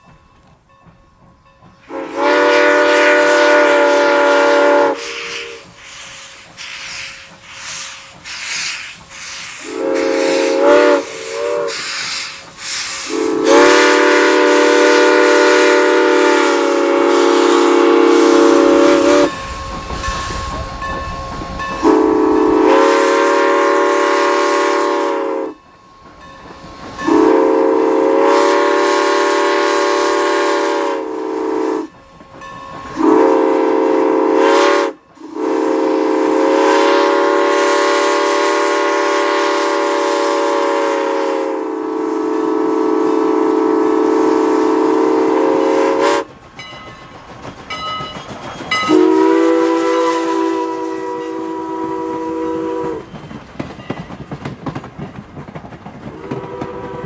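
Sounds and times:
steam whistle blasts: 0:01.8 - 0:19.5, 0:21.8 - 0:25.6, 0:27.0 - 0:32.0, 0:32.9 - 0:46.3, 0:48.7 - 0:53.2, 0:56.2 - 0:57.0.

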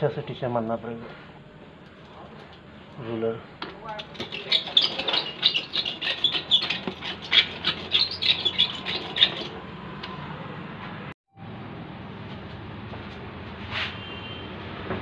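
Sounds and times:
hand roller squeaky strokes: 0:03.9 - 0:09.6.

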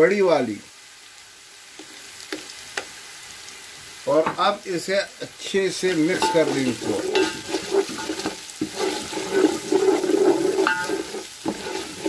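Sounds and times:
onions sizzling in oil: 0:00.0 - 0:12.0
wooden spoon scraping pot: 0:05.9 - 0:12.0.

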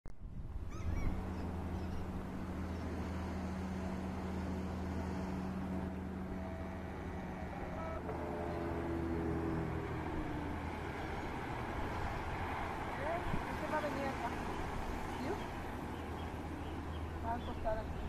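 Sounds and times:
boat engine droning: 0:00.2 - 0:18.0
bird calls: 0:00.7 - 0:03.3, 0:14.4 - 0:18.0.

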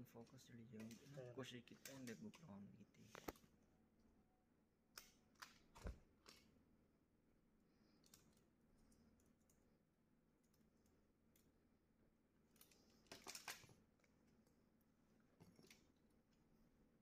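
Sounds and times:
plastic parts clicking: 0:00.2 - 0:02.5, 0:05.0 - 0:06.5, 0:12.5 - 0:13.8.

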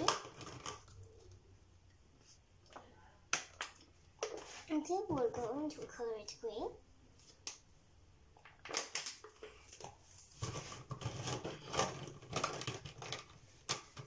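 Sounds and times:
plastic markers clicking and clattering: 0:00.0 - 0:01.1, 0:08.4 - 0:14.0.

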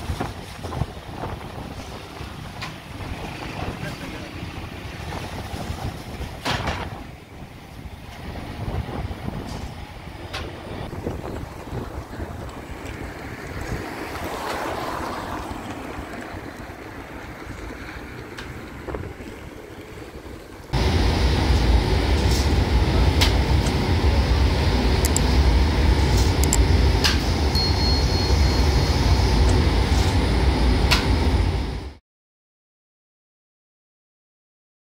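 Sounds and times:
car driving past: 0:13.0 - 0:16.8
bread oven machine rumbling: 0:17.4 - 0:32.0.

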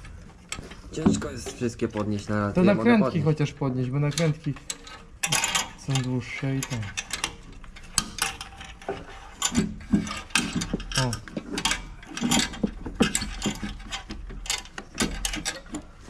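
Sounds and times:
metallic clicks of tools and fittings: 0:04.0 - 0:16.0.

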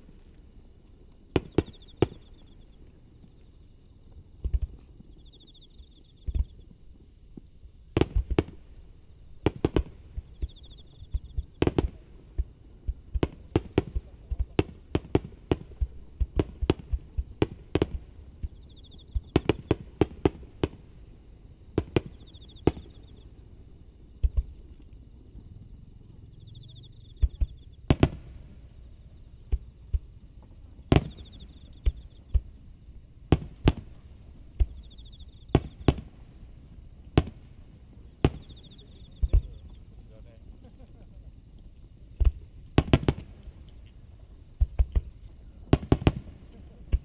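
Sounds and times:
distant firework bangs: 0:01.3 - 0:02.3, 0:07.9 - 0:08.7, 0:09.4 - 0:20.9, 0:21.7 - 0:23.2, 0:27.1 - 0:28.7, 0:30.9 - 0:32.6, 0:33.3 - 0:36.4, 0:37.1 - 0:39.7, 0:42.1 - 0:43.6, 0:44.6 - 0:47.0.

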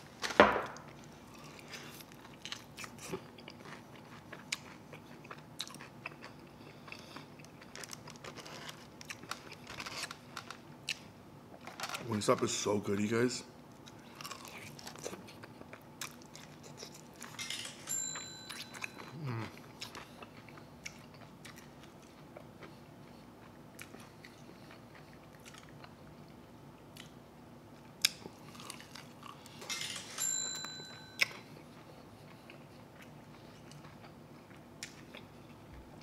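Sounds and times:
person chewing wetly: 0:00.8 - 0:10.2, 0:13.8 - 0:17.4, 0:18.5 - 0:27.2, 0:27.8 - 0:29.6, 0:31.2 - 0:35.6.

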